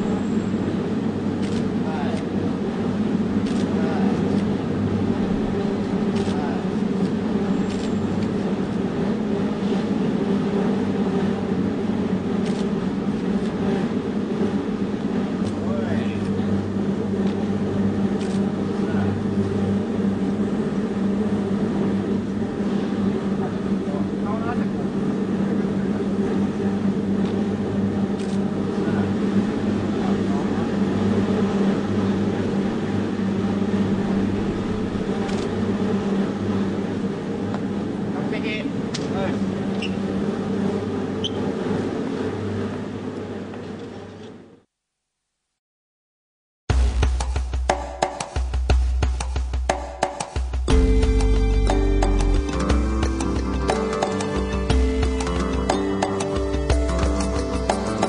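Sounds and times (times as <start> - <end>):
low mechanical hum: 0.0 - 44.7.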